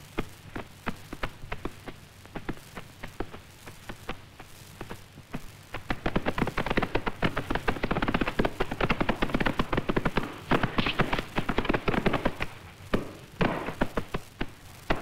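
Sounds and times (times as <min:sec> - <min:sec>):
horse hooves clopping and galloping: 0:00.0 - 0:15.0.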